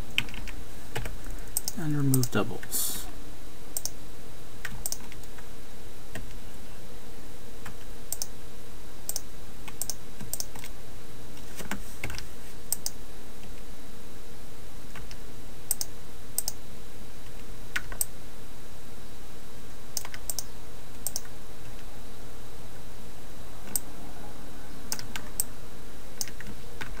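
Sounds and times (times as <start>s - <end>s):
steady low hum: 0.0s - 27.0s
keyboard and mouse clicks: 0.1s - 2.3s, 3.8s - 4.0s, 4.6s - 5.4s, 9.1s - 10.7s, 20.0s - 21.3s.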